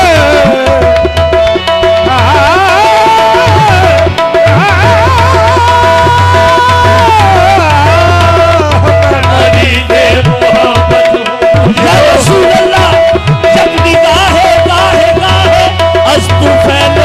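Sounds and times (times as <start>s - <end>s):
harmonium drone: 0.0s - 17.0s
tabla beating: 0.0s - 17.0s
person singing ornamented runs: 2.0s - 17.0s.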